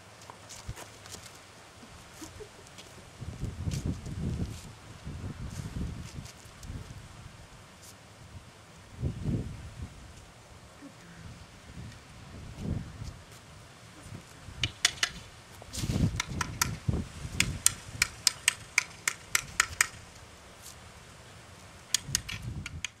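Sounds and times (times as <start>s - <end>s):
stick tapping on concrete: 14.6s - 15.2s, 16.1s - 20.0s, 21.9s - 23.0s.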